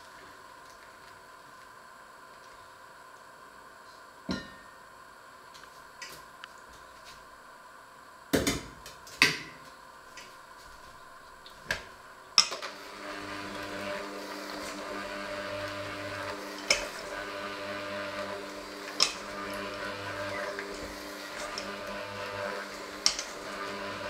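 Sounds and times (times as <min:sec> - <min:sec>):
electric hand mixer running: 0:11.8 - 0:24.0.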